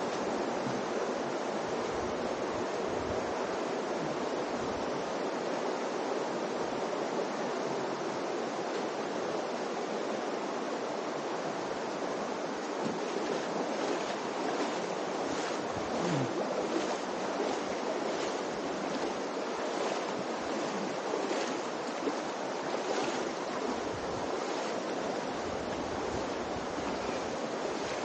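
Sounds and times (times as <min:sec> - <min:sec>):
shallow river water rushing: 0:00.0 - 0:28.0
faint splashes: 0:12.8 - 0:28.0.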